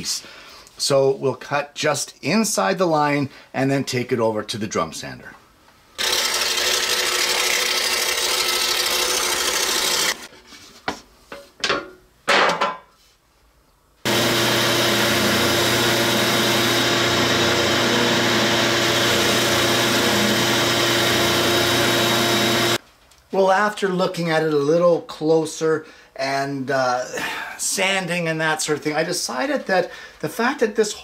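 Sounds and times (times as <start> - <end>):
drum sander running: 6.0 - 10.3, 14.1 - 22.8
scroll saw cutting: 6.0 - 10.3, 14.1 - 22.8.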